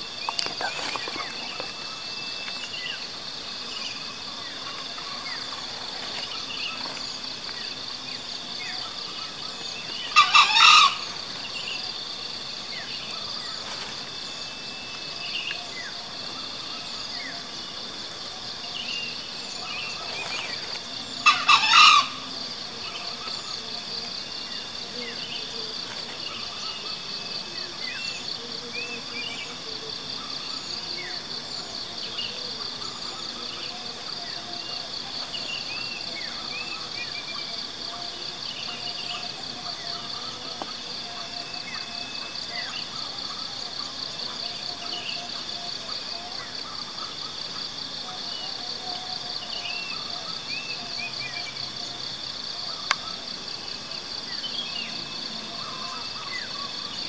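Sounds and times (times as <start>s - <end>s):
high insect drone: 0.0s - 57.0s
junglefowl crowing: 10.0s - 11.4s, 21.2s - 22.4s.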